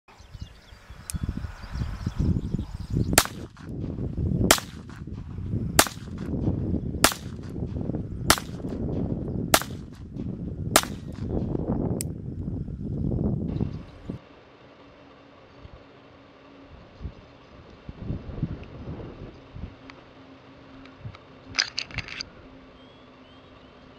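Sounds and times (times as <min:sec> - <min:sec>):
pistol shots: 0:03.2 - 0:03.7, 0:04.5 - 0:05.0, 0:05.8 - 0:06.3, 0:07.0 - 0:07.5, 0:08.3 - 0:08.7, 0:09.5 - 0:10.0, 0:10.8 - 0:11.3.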